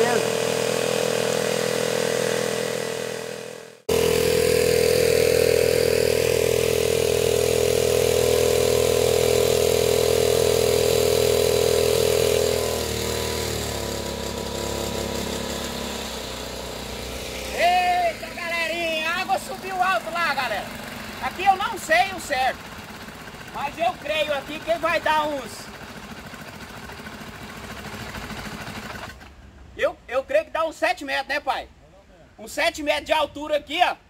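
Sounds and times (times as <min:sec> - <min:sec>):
small boat motor running: 0:00.0 - 0:29.4.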